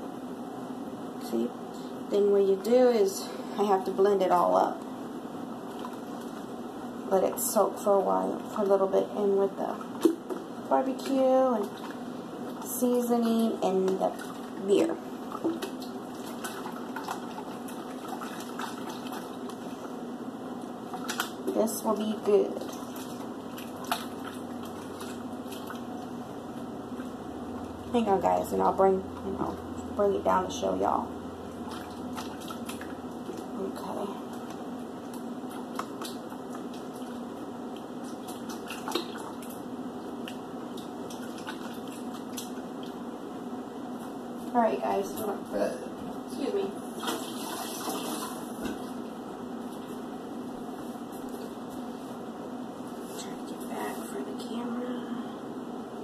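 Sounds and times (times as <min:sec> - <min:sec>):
wet sloshing of marinade: 0:13.8 - 0:20.0, 0:22.2 - 0:27.7, 0:31.5 - 0:33.6, 0:34.2 - 0:43.1.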